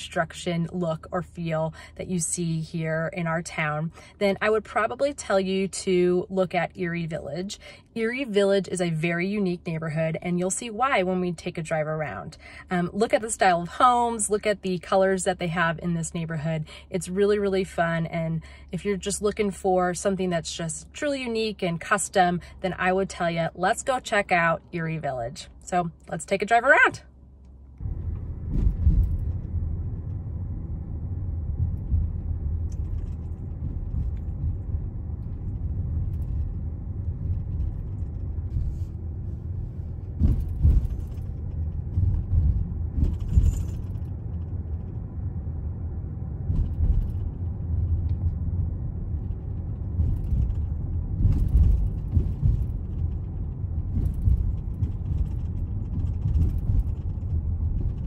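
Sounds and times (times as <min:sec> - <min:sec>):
car cabin rumble: 0:00.0 - 0:58.0.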